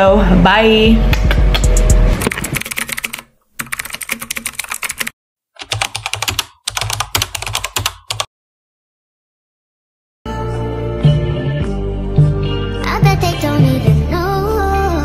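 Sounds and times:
keyboard typing clicks: 0:01.6 - 0:08.3.

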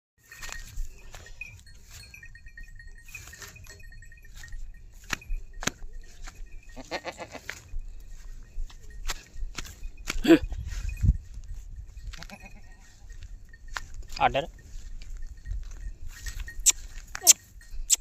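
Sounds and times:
goat bleating: 0:06.7 - 0:07.6.

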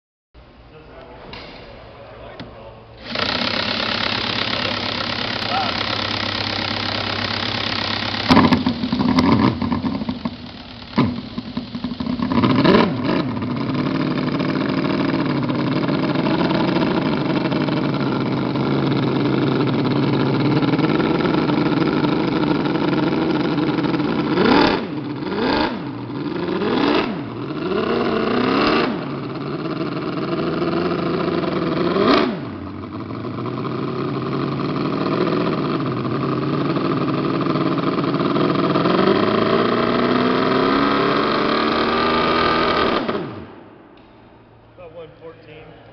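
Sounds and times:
cordless drill spinning: 0:03.0 - 0:24.5
model engine running and revving: 0:03.0 - 0:43.5.

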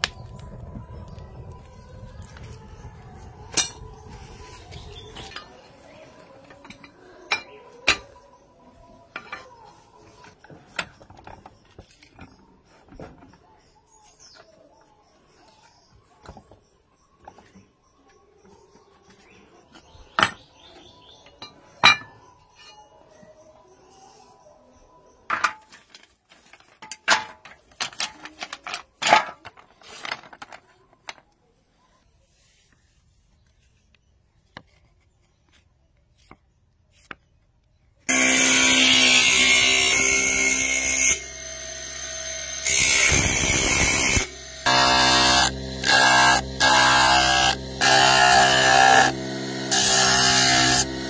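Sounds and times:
electric grinding wheel grinding: 0:38.1 - 0:51.0.

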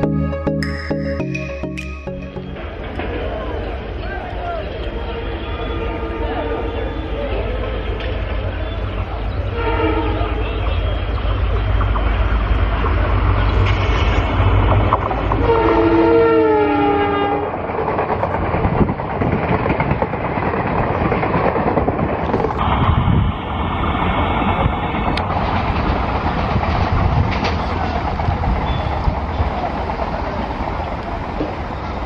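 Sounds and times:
locomotive horn: 0:09.5 - 0:10.8, 0:15.4 - 0:17.5
train wheels clattering over rail joints: 0:17.6 - 0:22.9, 0:25.2 - 0:31.9.

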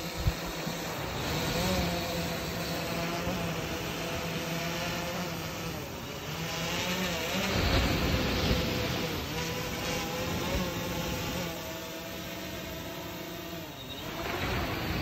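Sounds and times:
wind rumble on microphone: 0:00.0 - 0:02.6, 0:07.3 - 0:11.5
drone propellers buzzing: 0:00.0 - 0:15.0.

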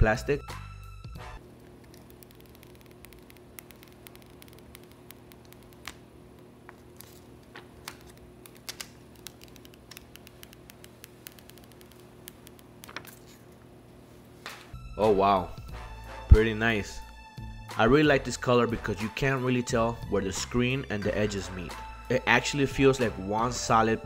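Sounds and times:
low electrical hum: 0:01.3 - 0:18.8
plastic film peeling: 0:01.6 - 0:13.4.

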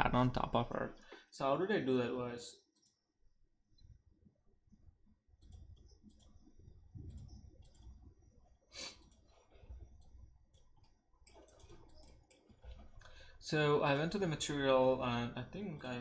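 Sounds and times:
computer mouse clicks: 0:02.7 - 0:03.0, 0:05.4 - 0:08.2, 0:08.8 - 0:13.2.

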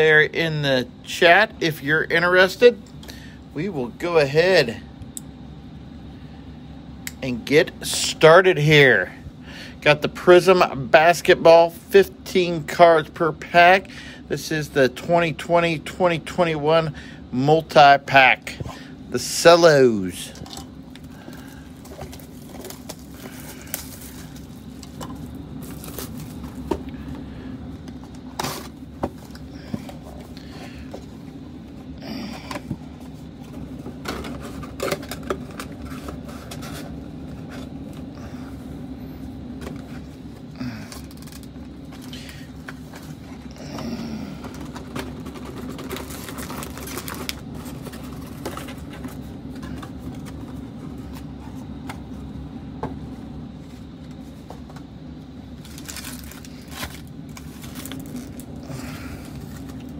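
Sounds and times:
plastic wrap crinkling: 0:21.0 - 0:26.7, 0:44.8 - 0:49.2, 0:55.6 - 0:59.9.

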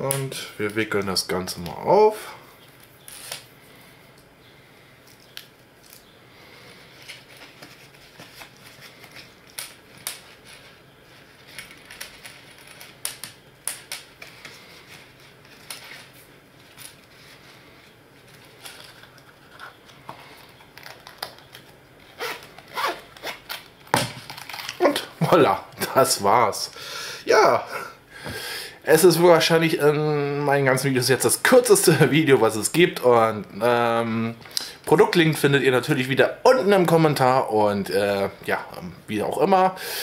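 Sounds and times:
cable clicks and rustles: 0:06.9 - 0:17.6, 0:18.2 - 0:25.1
zipper being pulled shut: 0:22.2 - 0:23.4.

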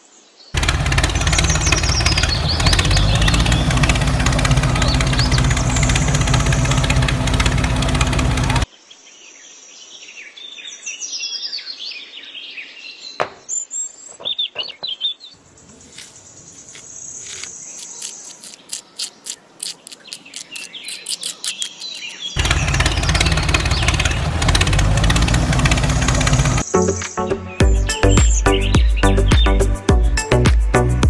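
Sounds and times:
small birds chirping: 0:00.6 - 0:08.7, 0:12.2 - 0:26.7, 0:27.5 - 0:29.7
gravel scraped and tipped: 0:15.5 - 0:22.4.

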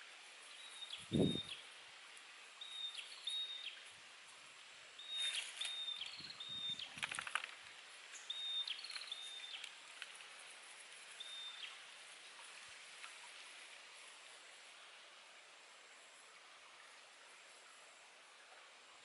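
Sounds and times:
outdoor background noise: 0:00.0 - 0:19.0
bird whistling: 0:00.7 - 0:01.6.

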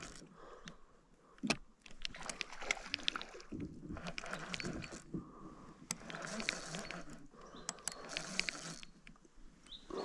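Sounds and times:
fishing reel ticking and clicking: 0:04.0 - 0:05.2, 0:05.8 - 0:09.2.

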